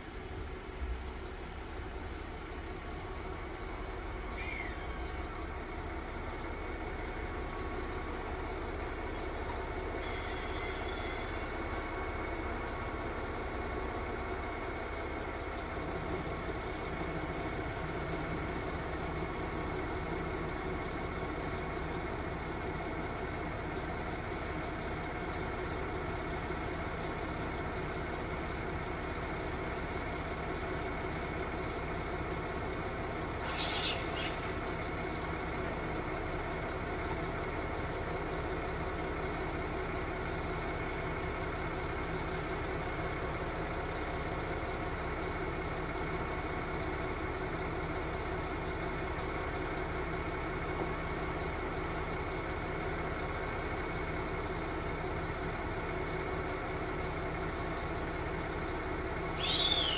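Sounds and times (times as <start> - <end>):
diesel railcar engine running: 0.0 - 59.9
high squeal: 2.4 - 5.2, 7.8 - 11.8, 33.4 - 34.5, 43.1 - 45.2, 59.4 - 59.9
short hiss: 33.4 - 34.4.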